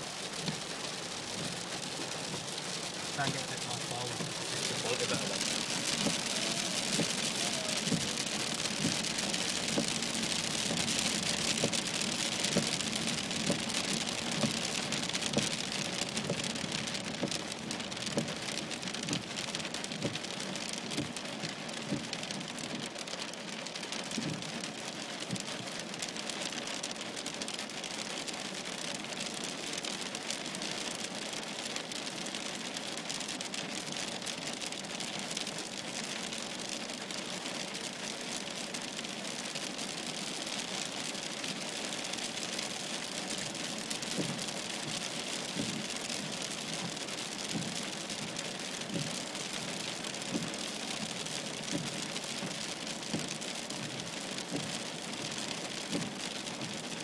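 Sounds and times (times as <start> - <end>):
rain and hail on car roof: 0.0 - 57.0.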